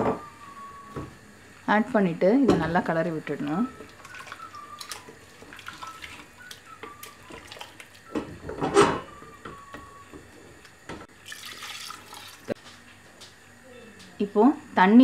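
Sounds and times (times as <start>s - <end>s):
liquid sloshing in a pot: 3.8s - 8.2s, 11.1s - 12.6s.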